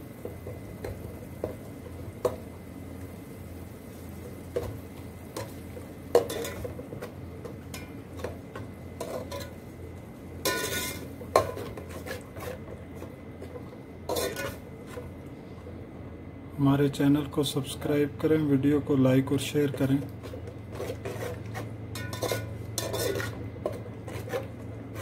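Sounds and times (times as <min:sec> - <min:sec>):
metal spoon scraping pot: 0:10.5 - 0:12.6, 0:14.1 - 0:14.6, 0:20.2 - 0:25.0.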